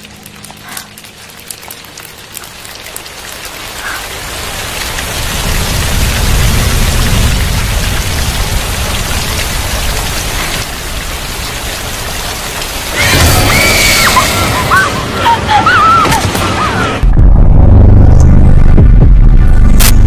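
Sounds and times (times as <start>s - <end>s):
heavy rain falling: 0.0s - 17.1s
woman screaming and wailing: 13.0s - 17.0s.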